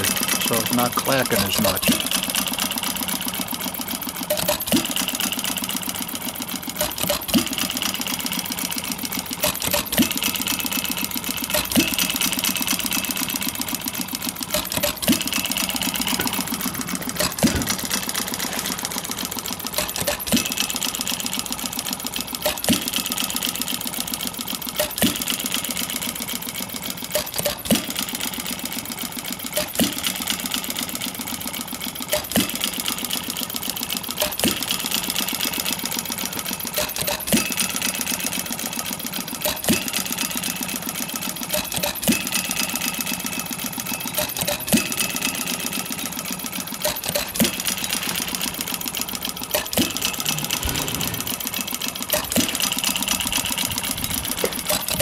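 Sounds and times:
model gas engine clattering: 0.0s - 55.0s
sharp engine knock: 4.3s - 21.5s, 49.5s - 55.0s.

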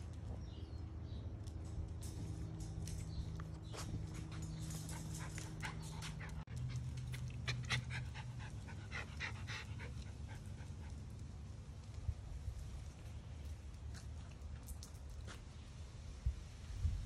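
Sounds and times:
dogs panting: 3.5s - 11.3s.

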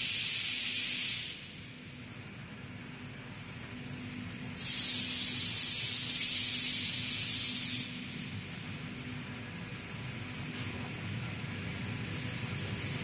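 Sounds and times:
compressed air hissing: 0.0s - 1.8s, 4.5s - 8.6s
faint machine hum: 0.0s - 13.0s.

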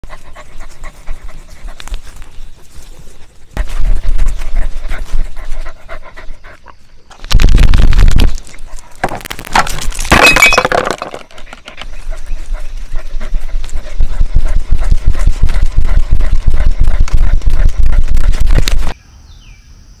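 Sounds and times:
dog panting: 0.0s - 6.9s, 11.3s - 19.0s
camera rubbing and knocking: 7.1s - 19.0s.

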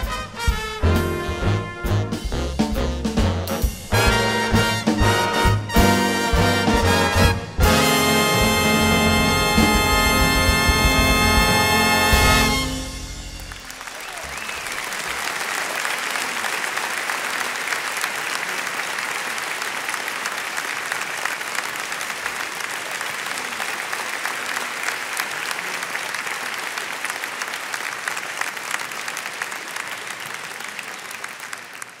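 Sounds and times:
audience applauding: 3.9s - 32.0s.

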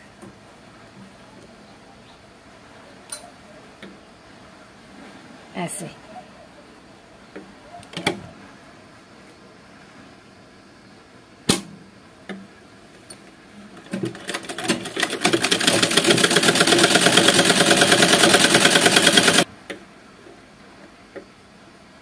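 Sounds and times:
sharp click: 11.5s - 12.4s
sewing machine stitching: 13.8s - 19.4s.

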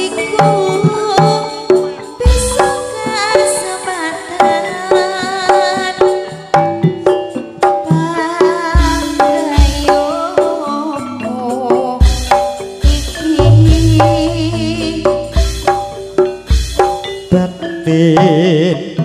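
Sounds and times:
woman singing: 0.0s - 6.7s, 7.9s - 15.8s
hand drums beating: 0.0s - 19.0s
pitched melody notes: 13.0s - 17.5s
deep drum thumps: 13.4s - 16.7s.

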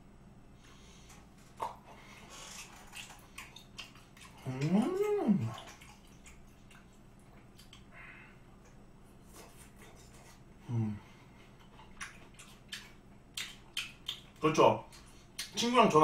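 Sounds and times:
man chewing: 0.6s - 15.6s
man humming mmm: 4.4s - 5.6s, 10.6s - 11.2s.

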